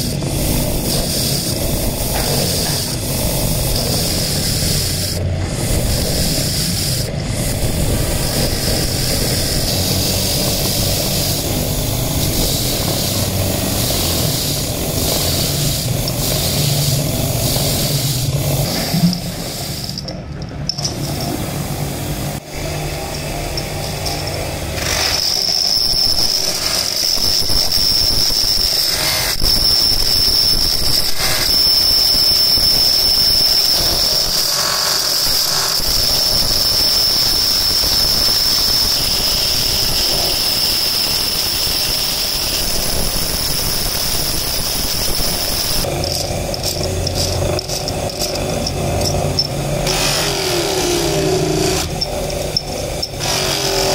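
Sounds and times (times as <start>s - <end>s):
electric motor running: 0.0s - 20.1s, 20.7s - 53.9s
grinding wheel squealing on metal: 0.0s - 20.1s, 22.5s - 53.9s
wire brush scrubbing metal: 0.0s - 20.1s, 22.4s - 53.9s.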